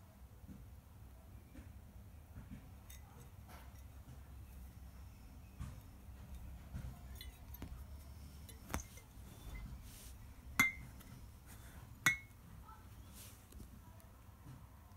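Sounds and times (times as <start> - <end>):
glass bottles clinking: 10.6 - 11.1, 12.1 - 12.3.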